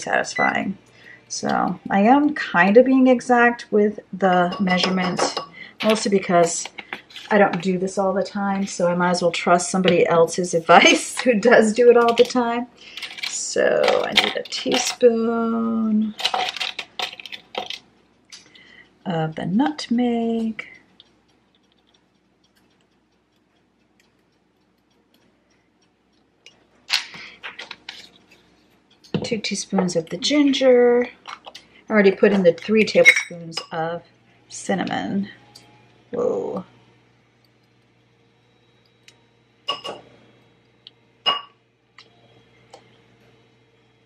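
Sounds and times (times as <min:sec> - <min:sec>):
faint light ticks: 0:20.6 - 0:26.6
spoon clinking against ceramic bowl: 0:33.0 - 0:33.7, 0:41.3 - 0:41.6.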